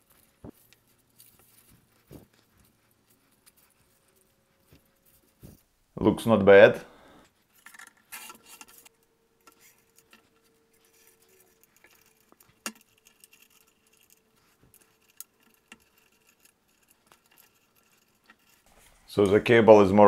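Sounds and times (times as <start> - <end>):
wire cable clicking on pulley: 7.6 - 18.7.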